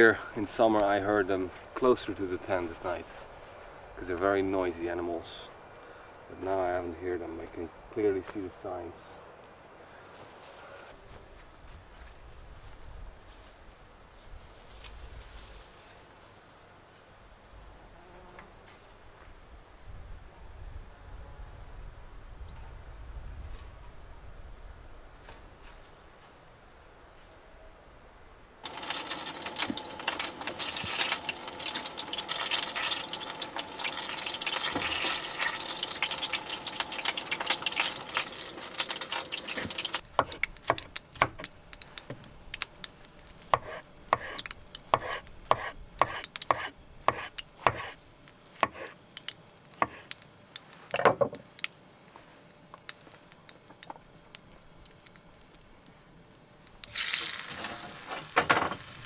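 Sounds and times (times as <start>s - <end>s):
tap water running into sink: 28.6s - 40.0s
food sizzling in frying pan: 28.6s - 47.9s, 56.8s - 59.0s
knife chopping on wooden board: 40.2s - 41.5s, 43.6s - 44.4s, 45.0s - 48.0s, 49.8s - 50.0s.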